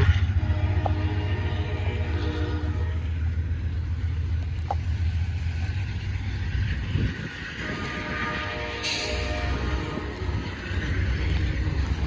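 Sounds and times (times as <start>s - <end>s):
train pulling away rumble: 0.0s - 12.0s
cars idling: 2.5s - 7.4s.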